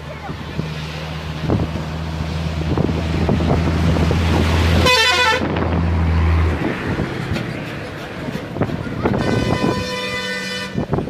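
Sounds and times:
vehicle engine drone: 0.0s - 11.0s
vehicle horn: 4.8s - 5.6s, 9.1s - 10.9s.

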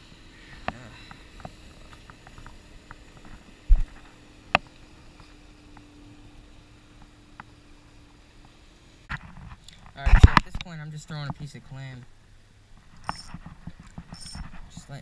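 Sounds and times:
faint hum: 0.0s - 15.0s
small clicks and rustles: 0.6s - 5.9s.

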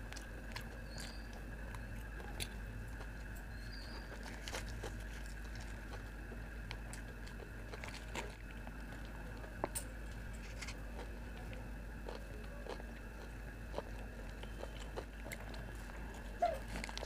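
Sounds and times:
chewing: 0.0s - 17.0s
steady low hum: 0.0s - 17.0s
biting into egg roll: 4.1s - 9.2s.

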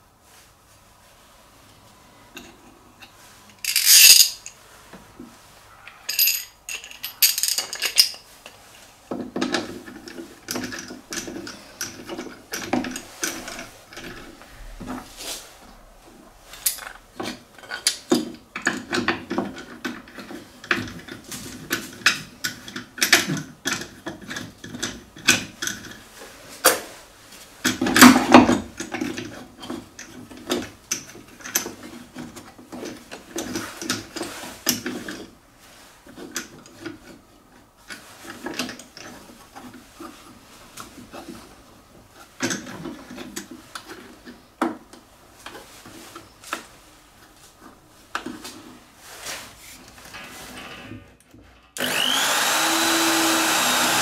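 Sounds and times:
knobs and clamps clicking and knocking: 9.1s - 15.0s, 16.6s - 26.8s.

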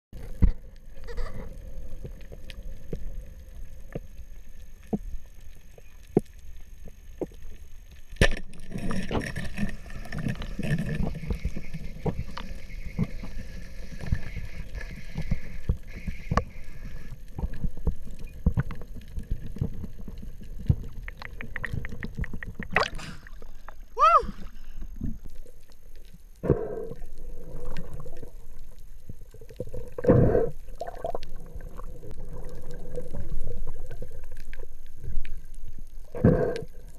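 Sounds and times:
muffled underwater water rush: 0.2s - 36.9s
underwater clicks and knocks: 20.6s - 23.0s.

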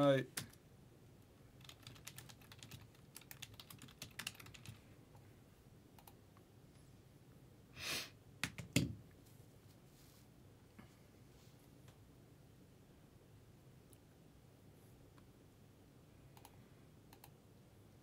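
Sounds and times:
keyboard typing: 1.6s - 4.8s, 8.4s - 8.9s.

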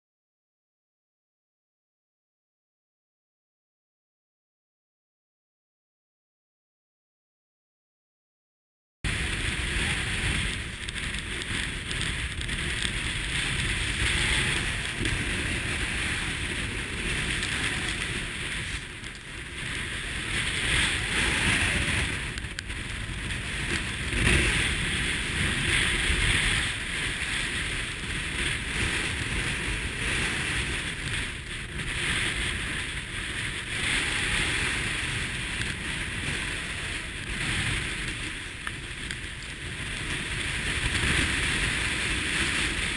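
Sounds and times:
wind buffeting microphone: 9.0s - 42.9s
water splashing along hull: 9.1s - 42.9s.

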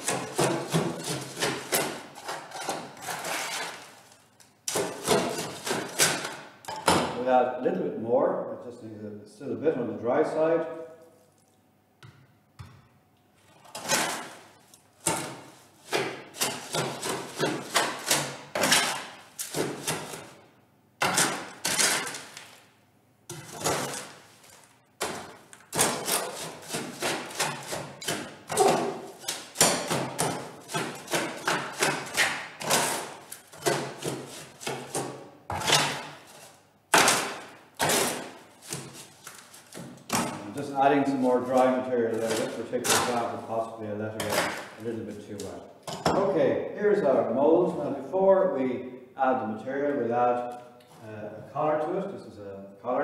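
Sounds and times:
trowel scraping gravel in metal tray: 0.0s - 4.1s.

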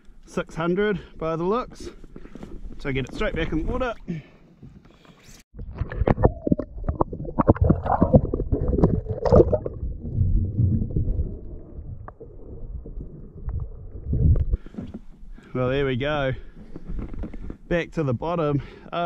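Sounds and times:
water splashing and gurgling: 5.5s - 14.7s
muffled underwater rumble: 5.6s - 15.1s.

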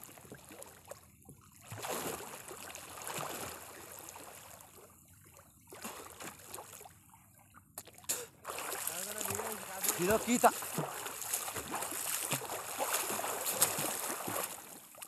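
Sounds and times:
water splashing from swimming strokes: 0.0s - 7.0s, 7.8s - 15.0s.

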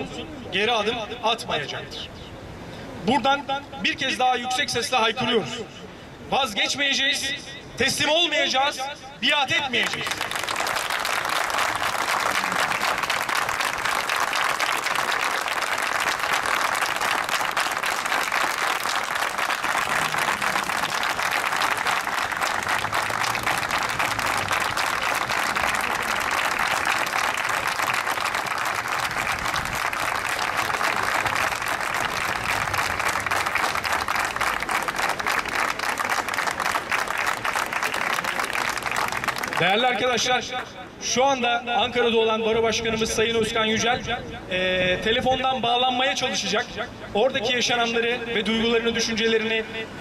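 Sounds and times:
crowd applauding: 9.8s - 39.8s.

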